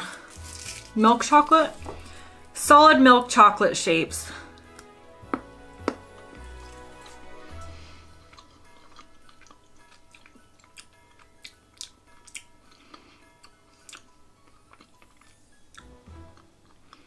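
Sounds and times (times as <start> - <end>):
soft background music: 0.0 - 17.0
quiet chewing of chocolate: 8.2 - 17.0.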